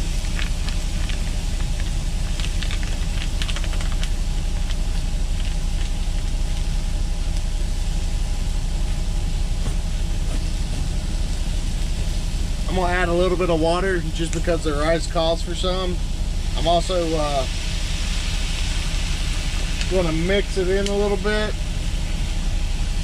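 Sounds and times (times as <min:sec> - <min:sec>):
plastic bag crinkling: 0:00.0 - 0:07.4
diesel engine idling: 0:00.0 - 0:23.0.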